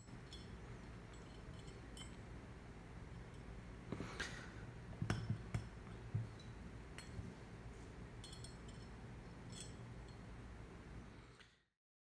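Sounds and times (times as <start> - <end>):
metal parts clicking and clinking: 0.0 - 2.3, 8.2 - 10.3.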